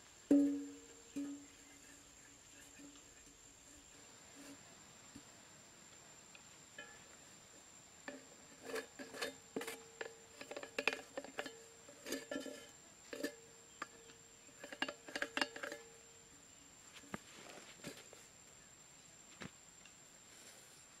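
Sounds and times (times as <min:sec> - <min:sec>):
metal tin clinking and scraping: 0:00.3 - 0:01.6, 0:06.8 - 0:07.1, 0:08.1 - 0:16.1.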